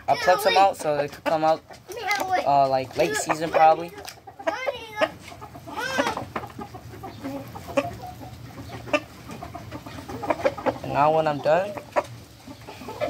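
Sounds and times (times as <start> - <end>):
rooster clucking: 0.0 - 13.0.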